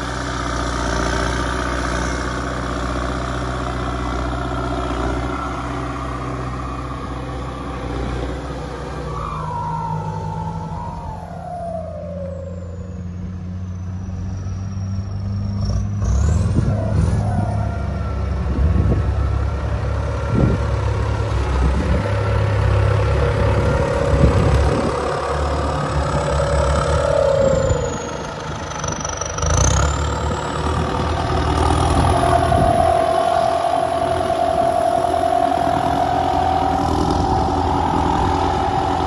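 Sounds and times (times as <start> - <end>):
tractor diesel engine under load: 0.0 - 39.0.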